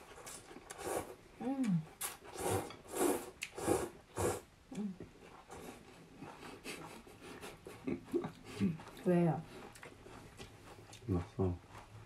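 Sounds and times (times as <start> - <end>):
person slurping noodles: 2.0 - 4.5.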